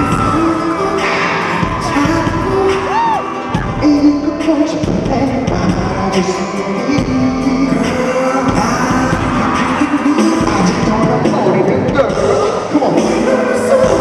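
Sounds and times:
live pop music: 0.0 - 14.0
man singing: 0.0 - 14.0.

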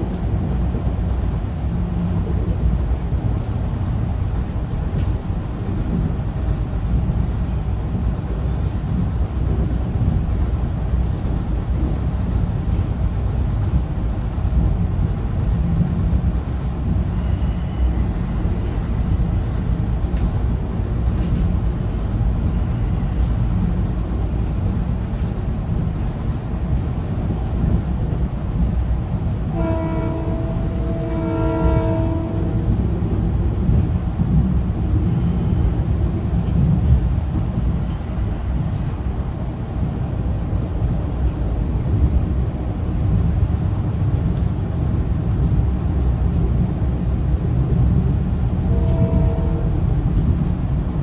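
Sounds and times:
train rumbling on track: 0.0 - 51.0
train horn: 29.5 - 32.8, 48.7 - 49.9.

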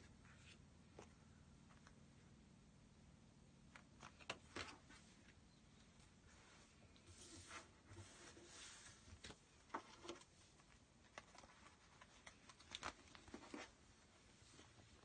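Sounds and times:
paper sheet rustling and ticking: 9.1 - 13.8.

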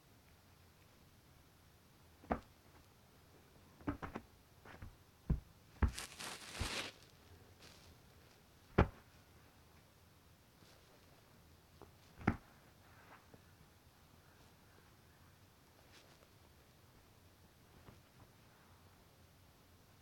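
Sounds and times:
short rustle: 5.9 - 8.4.

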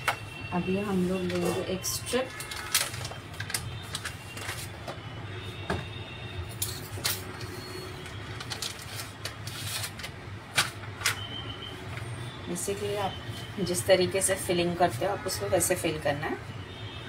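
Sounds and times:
plastic packet crinkling: 1.3 - 4.8, 8.2 - 11.2.

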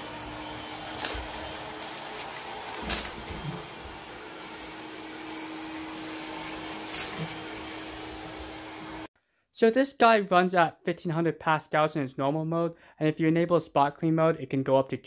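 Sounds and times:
robot vacuum humming: 0.0 - 9.1.

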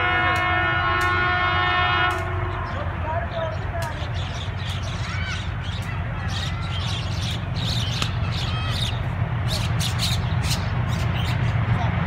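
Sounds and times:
diesel locomotive rumbling: 0.0 - 12.0
birds chirping and squawking: 2.6 - 11.6.

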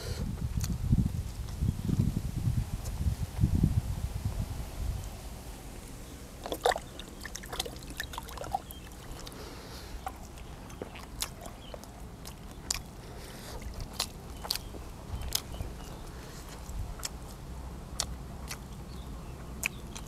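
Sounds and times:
wet chewing smacks: 6.4 - 20.0.

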